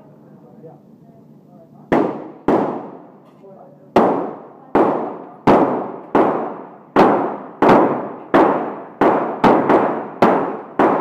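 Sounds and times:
pistol shots echoing indoors: 0:01.9 - 0:03.1, 0:03.9 - 0:11.0.

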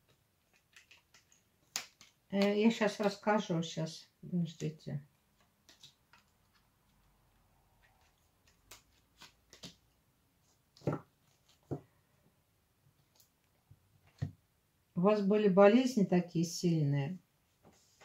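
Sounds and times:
cards clicking on a table: 0:00.1 - 0:03.2, 0:05.6 - 0:06.6, 0:08.4 - 0:09.8.

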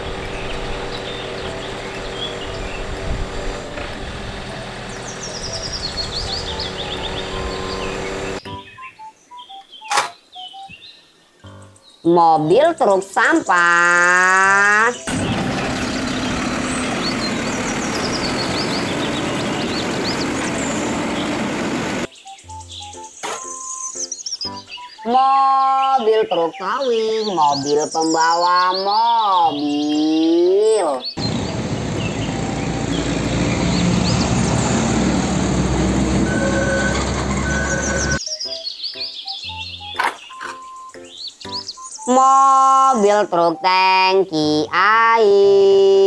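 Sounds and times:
garbage truck engine running: 0:00.0 - 0:08.4, 0:15.0 - 0:22.1, 0:31.2 - 0:38.2
hydraulic arm lifting trash cart: 0:00.0 - 0:08.4, 0:15.1 - 0:22.1, 0:31.2 - 0:38.2
traffic noise: 0:00.0 - 0:08.4, 0:14.9 - 0:22.1, 0:31.2 - 0:38.2.

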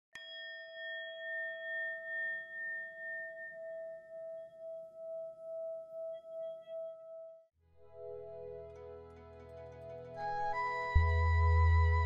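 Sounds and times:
singing bowl ringing: 0:00.2 - 0:07.4.

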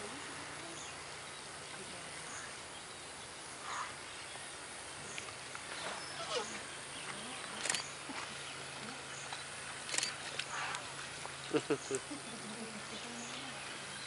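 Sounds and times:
steady hiss: 0:00.0 - 0:14.0
elephant squeaks and grunts: 0:06.0 - 0:06.6.

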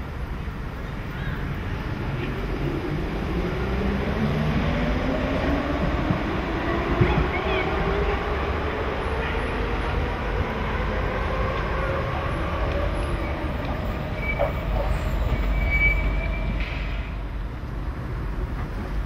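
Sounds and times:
high brake squeals: 0:13.0 - 0:17.3.

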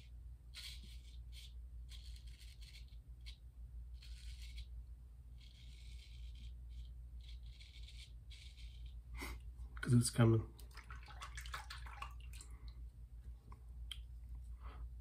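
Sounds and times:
razor scraping beard stubble: 0:00.0 - 0:09.4.

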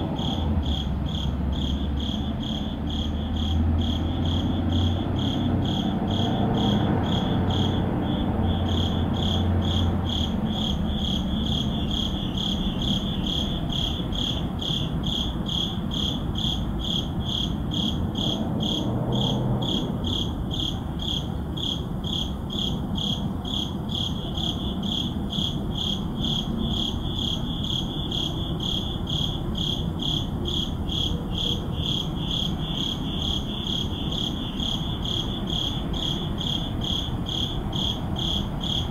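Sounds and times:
crickets chirping: 0:00.0 - 0:38.9.

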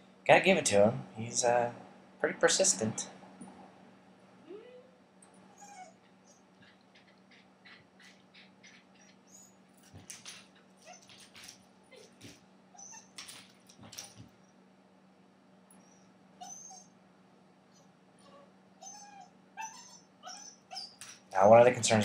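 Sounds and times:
puppy whimpering: 0:04.4 - 0:13.4, 0:15.8 - 0:17.0, 0:17.7 - 0:21.2
dog claws scrabbling on plastic gate: 0:09.8 - 0:12.4, 0:13.0 - 0:14.4.

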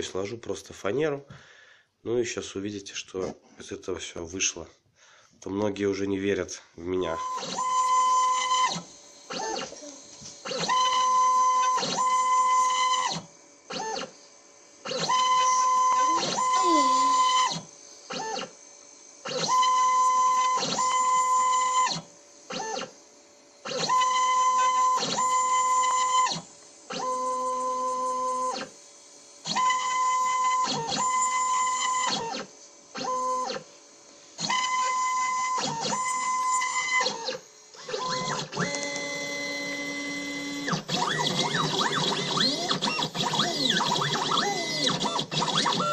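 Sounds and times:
stepper motors whining: 0:07.0 - 0:14.2, 0:14.8 - 0:18.6, 0:29.4 - 0:33.6, 0:34.4 - 0:45.9.

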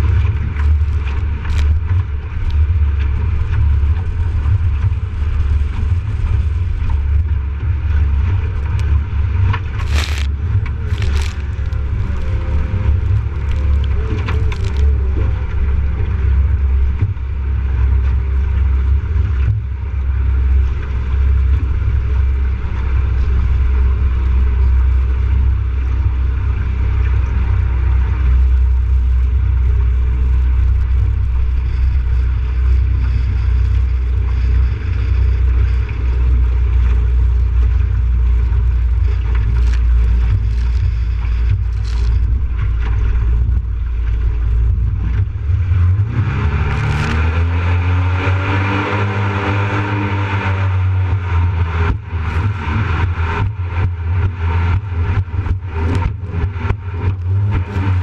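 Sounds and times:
boat engine rumble: 0:00.0 - 0:58.0
waves slapping: 0:00.0 - 0:58.0
wind buffeting microphone: 0:00.0 - 0:58.0.

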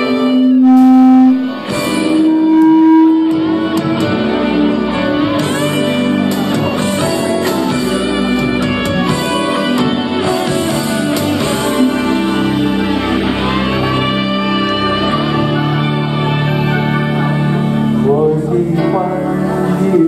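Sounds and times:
held tones: 0:00.0 - 0:03.8
plucked guitar-like notes: 0:00.0 - 0:20.0.

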